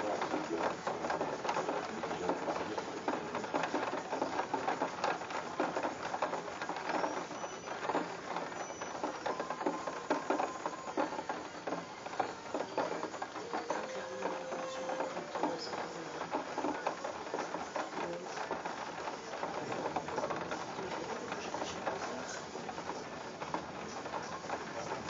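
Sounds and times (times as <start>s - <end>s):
heavy rain falling: 0.0s - 25.0s.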